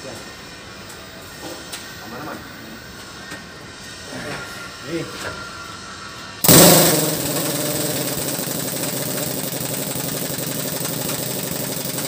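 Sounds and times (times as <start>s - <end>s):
air impact wrench hammering: 6.4s - 12.0s.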